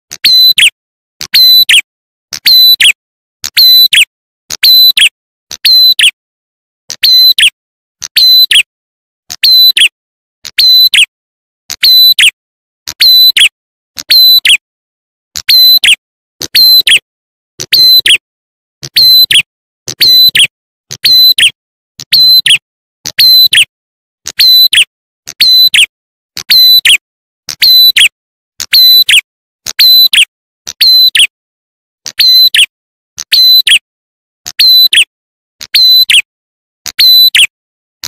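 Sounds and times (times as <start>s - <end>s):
bird chirping sharp phrases: 1.3s - 1.8s, 2.4s - 5.1s, 7.0s - 7.5s, 8.1s - 8.6s, 9.4s - 9.9s, 17.7s - 18.1s, 18.9s - 19.4s, 20.0s - 20.4s, 21.0s - 21.5s, 35.7s - 36.2s.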